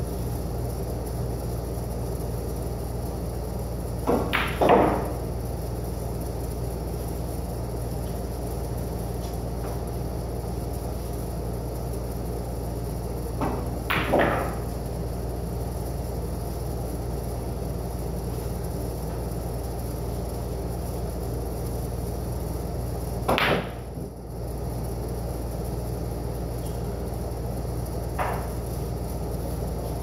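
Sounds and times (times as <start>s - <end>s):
steady low hum: 0.0s - 30.0s
pool balls clacking: 4.1s - 5.2s, 13.4s - 14.6s.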